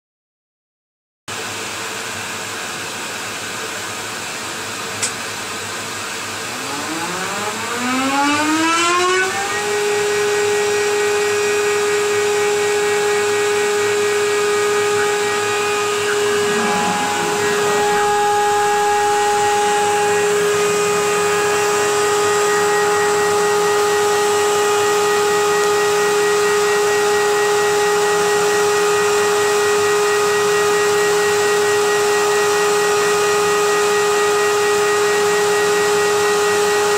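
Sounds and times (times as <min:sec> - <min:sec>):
milling machine motor whine: 0:03.8 - 0:36.9
dust extraction air rush: 0:10.6 - 0:25.2.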